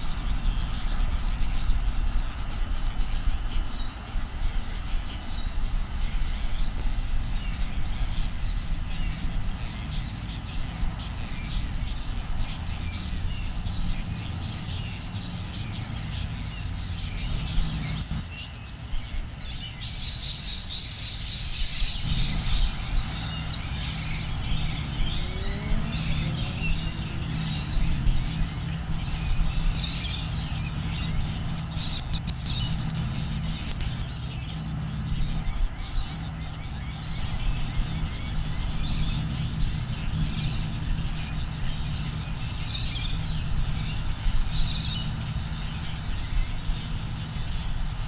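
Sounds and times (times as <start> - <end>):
small birds chirping: 0.0 - 48.0
low rumble: 21.6 - 48.0.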